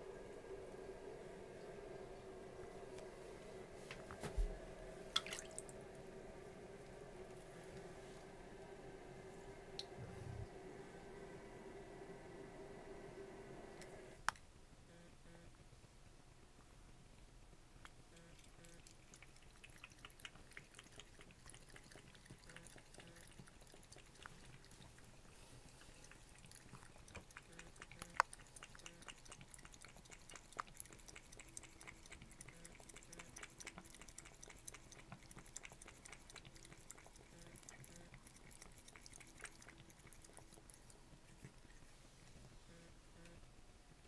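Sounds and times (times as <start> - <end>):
cat lapping water: 4.4 - 10.0, 18.2 - 42.2
small water splashes: 5.1 - 5.7.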